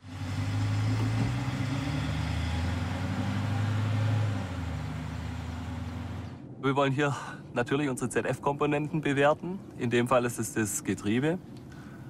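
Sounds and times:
tyre and road noise: 0:00.0 - 0:06.5
car engine hum: 0:00.0 - 0:06.6.

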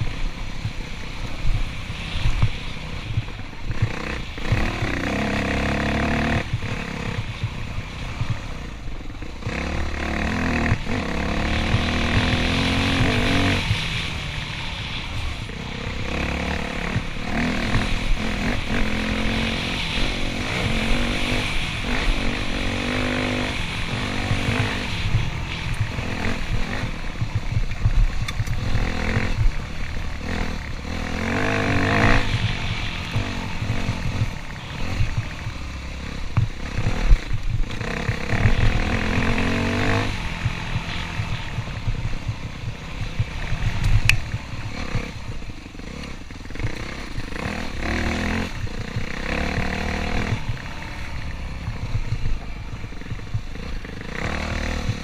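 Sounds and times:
dirt bike engine revving: 0:00.0 - 0:55.0
wind buffeting microphone: 0:16.9 - 0:54.0.

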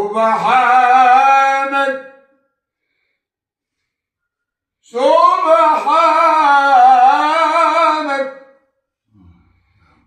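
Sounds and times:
man reciting melodically: 0:00.0 - 0:02.5, 0:04.8 - 0:09.4.

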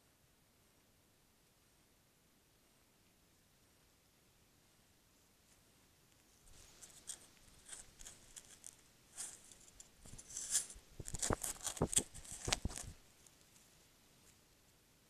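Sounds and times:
scratchy rustling on microphone: 0:06.4 - 0:13.0.

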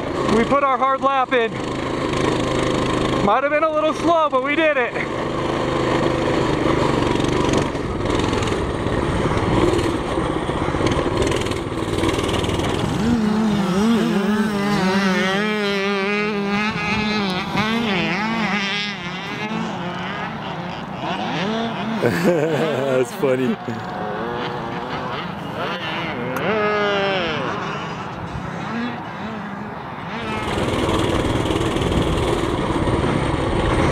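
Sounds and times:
small motorbike engine running: 0:00.0 - 0:33.9
wind noise: 0:30.3 - 0:33.9.

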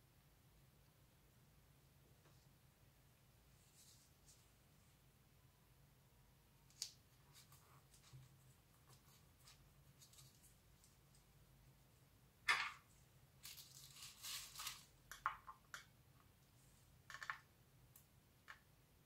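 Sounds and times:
bubble wrap rustling: 0:13.4 - 0:15.0.

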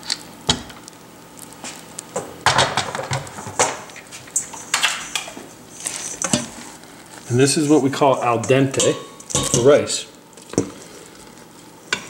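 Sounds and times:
metal cookware clattering and scraping: 0:08.3 - 0:09.8.

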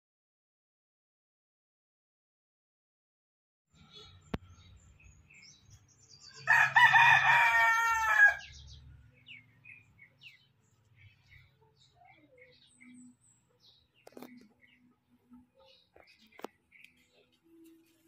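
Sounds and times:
rooster crowing: 0:06.4 - 0:08.5.

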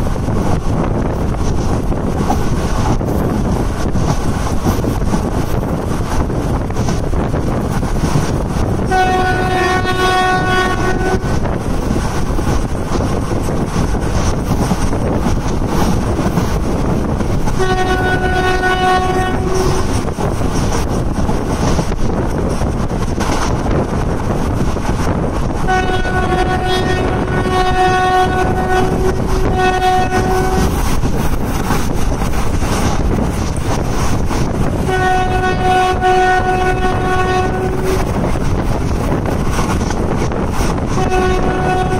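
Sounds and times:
train rumble and wind noise: 0:00.0 - 0:41.9
locomotive horn blasts: 0:08.9 - 0:11.4, 0:17.6 - 0:20.0, 0:25.7 - 0:30.8, 0:34.9 - 0:38.2, 0:40.9 - 0:41.9.

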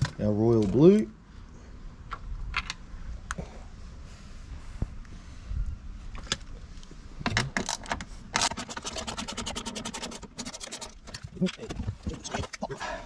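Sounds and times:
metal scraping: 0:08.4 - 0:12.3.

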